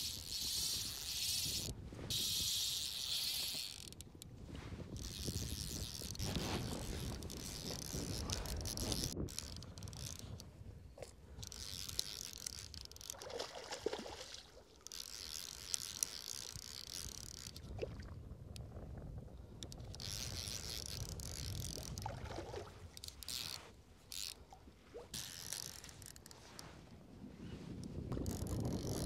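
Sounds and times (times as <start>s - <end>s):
wind rumbling on microphone: 0.0s - 14.0s, 16.5s - 23.6s, 24.9s - 29.0s.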